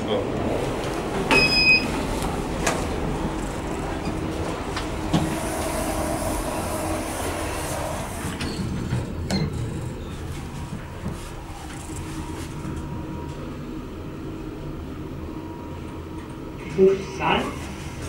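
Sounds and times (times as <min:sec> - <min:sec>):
elevator travelling hum: 0:00.0 - 0:18.0
elevator doors shutting click: 0:00.7 - 0:13.6.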